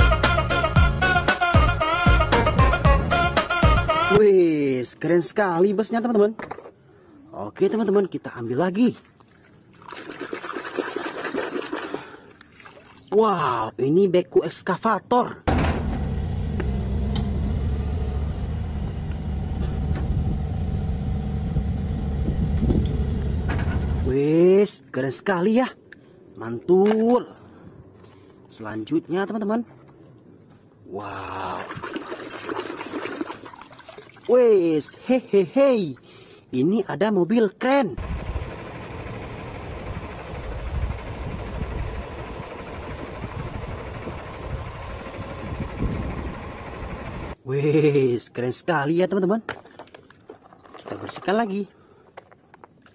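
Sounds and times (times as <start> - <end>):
diesel engine running: 15.5 - 24.1, 38.0 - 47.4.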